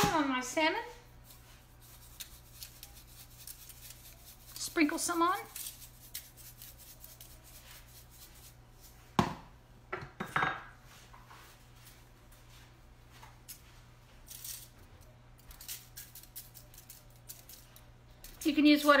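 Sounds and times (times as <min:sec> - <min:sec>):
shakers rattling and sprinkling: 0:01.2 - 0:08.6, 0:13.4 - 0:19.0.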